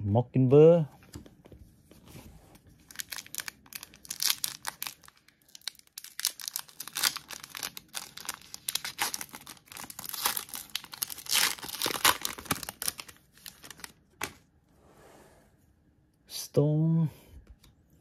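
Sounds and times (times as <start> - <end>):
foil wrapper tearing and crinkling: 2.9 - 14.0.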